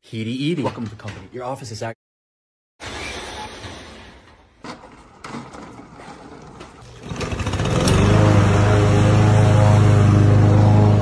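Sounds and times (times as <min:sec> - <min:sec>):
lawn mower pull-start: 0:02.8 - 0:11.0
lawn mower engine running: 0:06.2 - 0:11.0.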